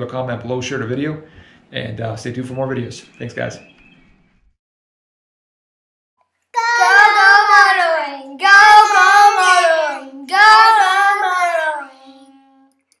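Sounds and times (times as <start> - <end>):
high voice singing: 6.6 - 12.6.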